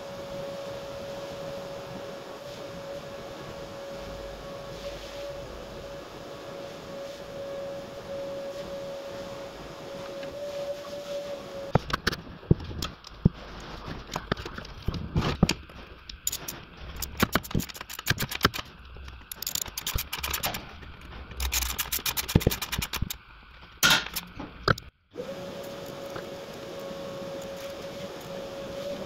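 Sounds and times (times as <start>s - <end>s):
steady hum with high tone: 0.0s - 29.0s
ratchet wrench clicking: 19.3s - 20.6s.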